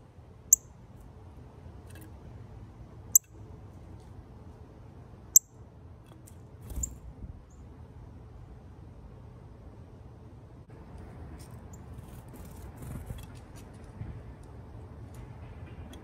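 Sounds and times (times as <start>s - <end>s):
bird wings fluttering: 12.0s - 13.6s.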